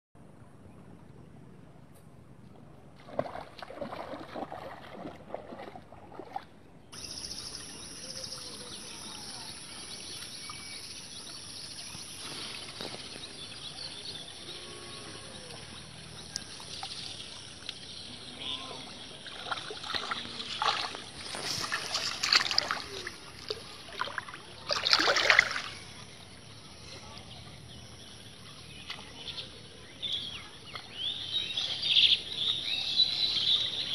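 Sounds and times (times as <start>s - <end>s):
feet wading through water: 2.9s - 6.7s, 10.0s - 29.2s
muddy water sloshing and splashing: 2.9s - 6.7s, 15.4s - 26.6s.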